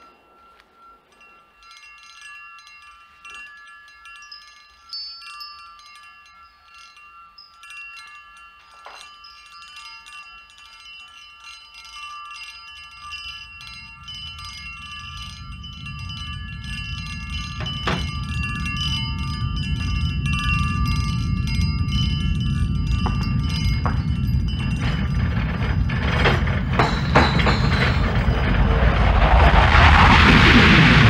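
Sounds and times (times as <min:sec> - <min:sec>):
sharp glass clink: 0:00.0 - 0:28.4
wine glasses ringing and chiming: 0:00.0 - 0:28.4
low rumble: 0:13.6 - 0:31.0.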